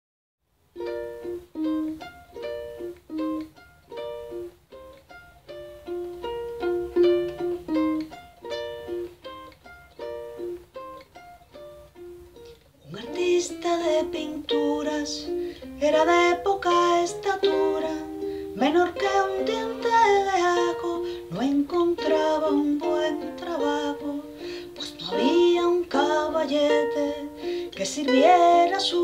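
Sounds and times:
ukulele picked melody: 0:00.6 - 0:29.0
woman singing: 0:12.8 - 0:29.0.

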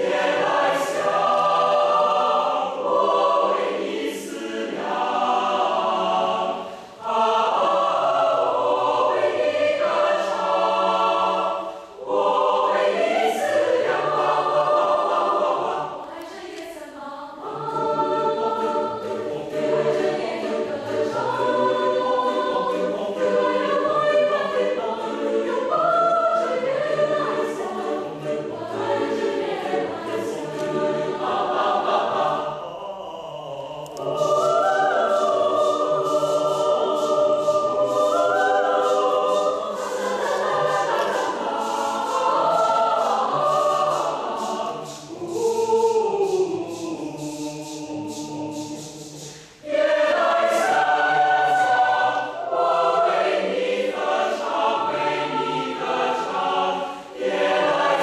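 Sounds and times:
choir singing in parts: 0:00.0 - 0:58.0
crisp rhythmic ticks: 0:00.1 - 0:02.2, 0:27.4 - 0:32.0, 0:33.8 - 0:56.6.

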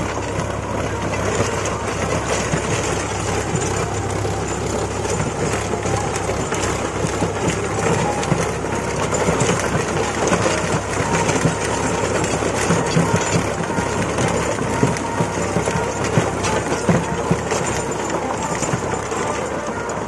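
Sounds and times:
rotavator blades churning soil: 0:00.0 - 0:20.0
tractor diesel engine running: 0:00.0 - 0:20.0.

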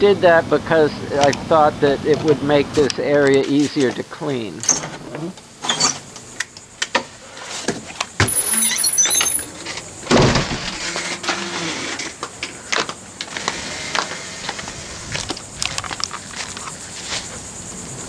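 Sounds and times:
door banging shut: 0:08.2 - 0:11.0.

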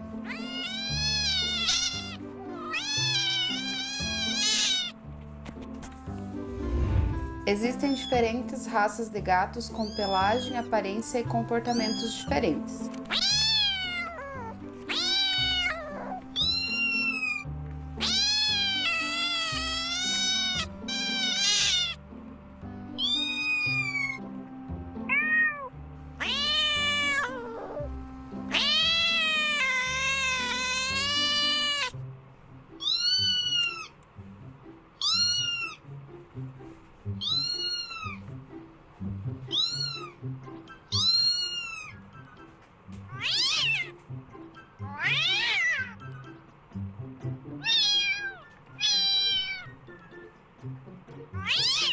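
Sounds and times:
background music: 0:00.0 - 0:51.9
cat meowing: 0:00.1 - 0:05.0, 0:09.7 - 0:10.7, 0:11.6 - 0:22.0, 0:22.9 - 0:24.3, 0:25.0 - 0:32.0, 0:32.7 - 0:34.0, 0:35.0 - 0:35.9, 0:37.2 - 0:38.3, 0:39.5 - 0:40.2, 0:40.9 - 0:42.1, 0:43.1 - 0:44.0, 0:44.8 - 0:46.2, 0:47.6 - 0:49.8, 0:51.3 - 0:51.9.

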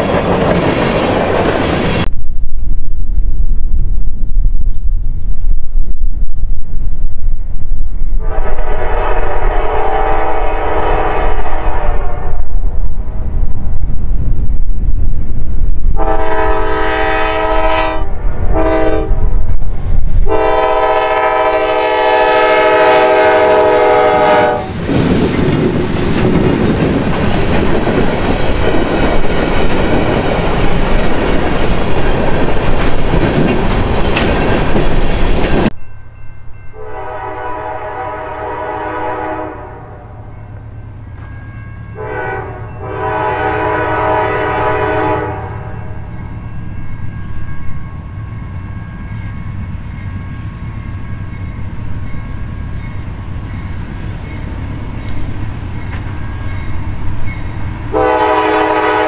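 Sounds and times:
freight cars rolling on rails: 0:00.0 - 0:02.1, 0:24.6 - 0:35.7
locomotive air horn: 0:08.2 - 0:12.5, 0:16.0 - 0:19.2, 0:20.3 - 0:24.7, 0:36.8 - 0:40.3, 0:42.0 - 0:45.9, 0:57.9 - 0:59.0.

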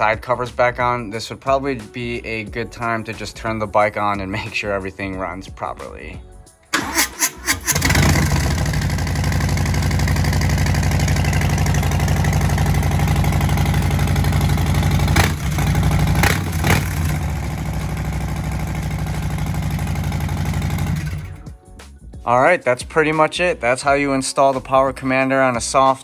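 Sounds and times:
motorcycle engine cranking: 0:06.7 - 0:21.5
motorcycle engine idling: 0:07.5 - 0:21.5
motorcycle throttle blips: 0:07.7 - 0:21.4.

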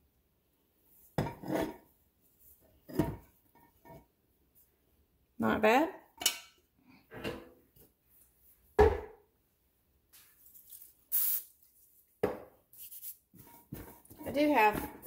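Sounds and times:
rubbing and brushing dough: 0:10.1 - 0:15.0.

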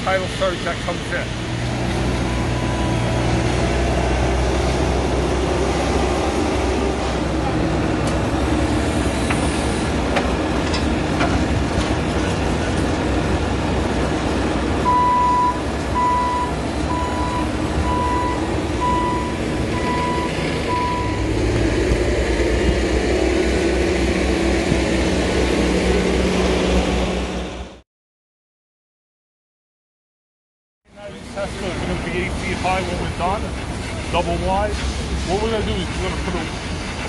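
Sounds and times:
diesel engine running: 0:00.0 - 0:27.8, 0:30.9 - 0:37.0
reversing alarm beeping: 0:02.2 - 0:03.4, 0:14.8 - 0:21.4.

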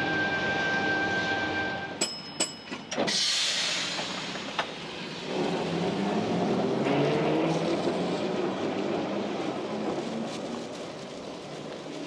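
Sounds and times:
tram rumble with motor whine: 0:00.0 - 0:12.0
hiss: 0:03.1 - 0:04.6.

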